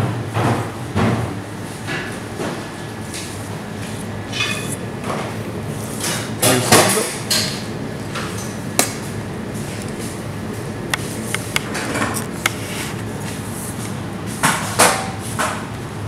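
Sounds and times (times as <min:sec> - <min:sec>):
steady hum: 0:00.3 - 0:16.0
meat scraping and handling: 0:11.0 - 0:13.9.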